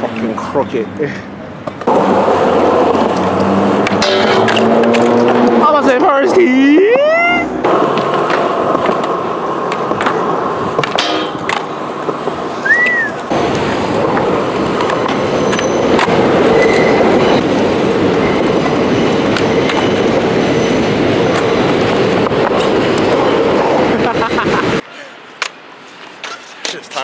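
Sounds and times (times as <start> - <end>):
skateboard wheels rolling on concrete: 0.0 - 27.0
skateboard clicks and knocks: 7.7 - 16.9
brief squeak: 15.4 - 15.8, 16.6 - 17.0.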